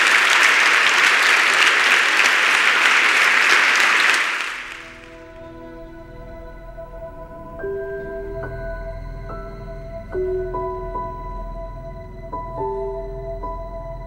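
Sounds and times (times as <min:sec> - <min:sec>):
audience applauding: 0:00.0 - 0:05.4
soft music with held tones: 0:04.9 - 0:14.0.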